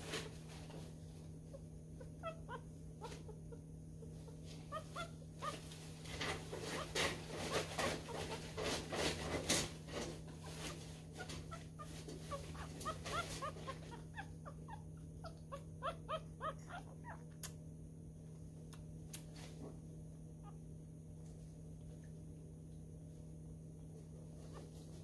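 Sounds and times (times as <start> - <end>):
steady low hum: 0.0 - 25.0
puppy whimpering squeaks: 1.5 - 5.7, 10.5 - 17.3.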